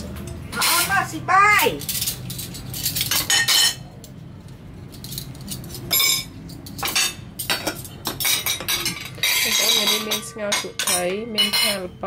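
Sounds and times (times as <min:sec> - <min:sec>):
spoons clinking on ceramic plates: 0:01.8 - 0:04.0, 0:05.0 - 0:12.0.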